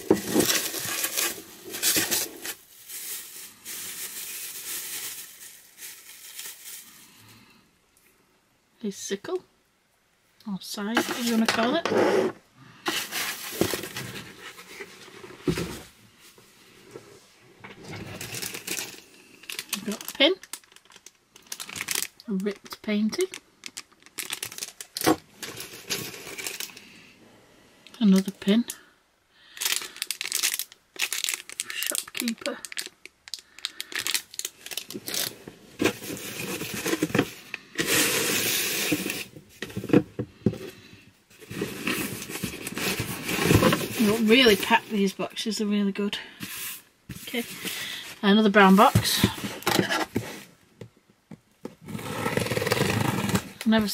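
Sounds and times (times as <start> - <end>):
packaging rustling: 0.0 - 7.0, 12.9 - 15.8, 17.8 - 22.7, 23.3 - 26.8, 29.6 - 40.0, 41.3 - 44.8, 51.8 - 53.7.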